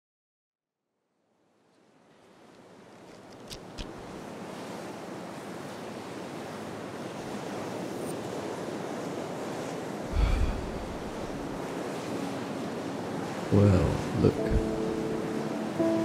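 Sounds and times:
wind: 1.1s - 16.0s
sea surf washing in: 3.8s - 16.0s.

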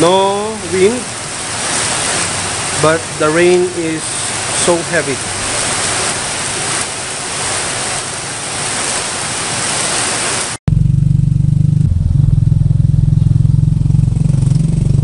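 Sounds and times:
heavy rain pouring: 0.0s - 10.6s, 12.5s - 15.0s
vehicle engine running: 10.7s - 15.0s.

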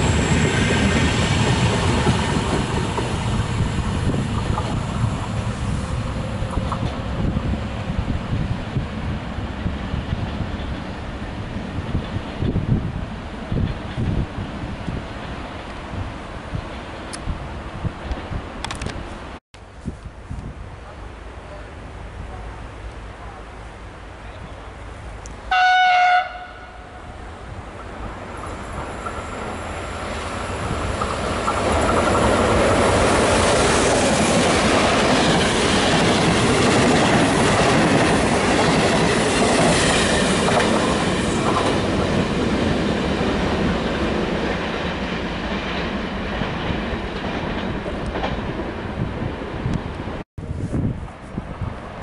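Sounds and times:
train rumbling past: 0.0s - 19.4s, 20.3s - 52.0s
train horn blast: 25.5s - 27.2s.

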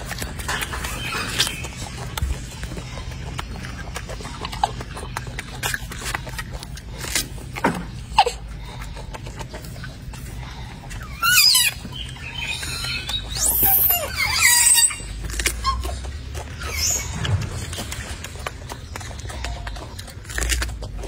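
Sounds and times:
monkey whistle-like calls: 11.0s - 16.0s, 16.6s - 17.2s
monkey warbling squeal: 11.0s - 17.2s.

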